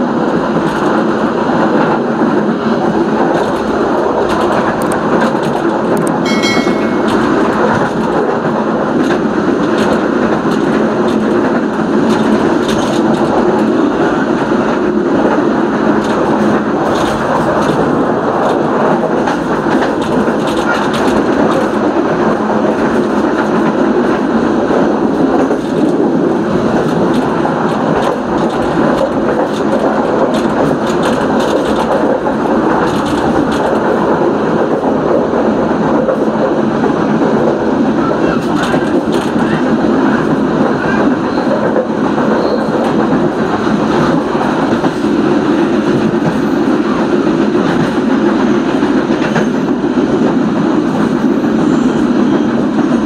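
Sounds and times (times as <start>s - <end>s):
train running on rails: 0.0s - 53.0s
short high-pitched tone: 6.2s - 7.6s.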